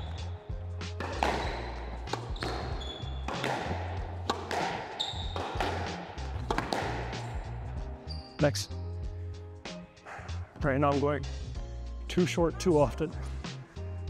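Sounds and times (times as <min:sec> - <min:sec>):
background music: 0:00.0 - 0:14.0
squash ball hits: 0:00.9 - 0:07.6.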